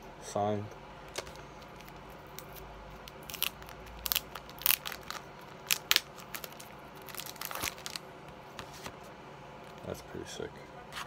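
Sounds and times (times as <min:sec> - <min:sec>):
plastic sleeve crinkling: 0:01.1 - 0:08.9.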